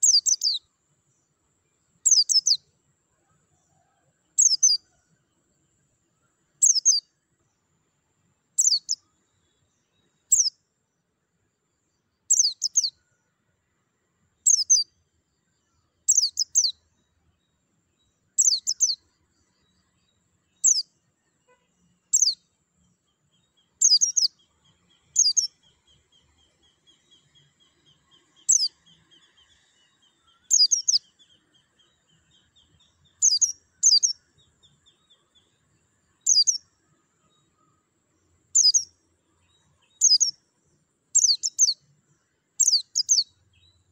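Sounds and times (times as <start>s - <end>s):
bird chirping: 0.0s - 43.9s.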